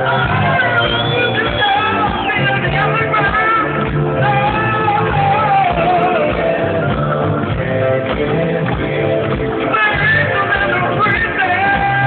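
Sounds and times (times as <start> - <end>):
electric guitar: 0.0 - 12.0
live rock band: 0.0 - 12.0
person singing: 0.0 - 12.0.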